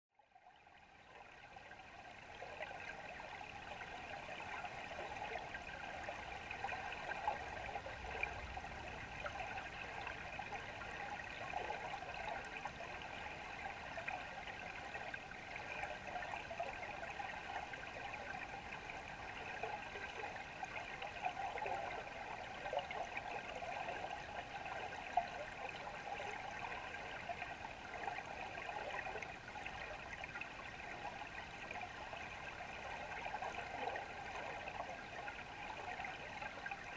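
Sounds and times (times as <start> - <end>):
river current underwater: 0.3 - 36.9.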